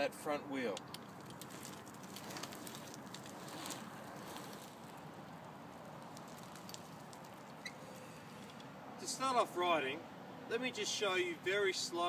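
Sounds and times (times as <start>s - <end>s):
gritty rolling noise with crackles: 0.0s - 9.6s
small wheels rolling on asphalt: 0.7s - 8.8s.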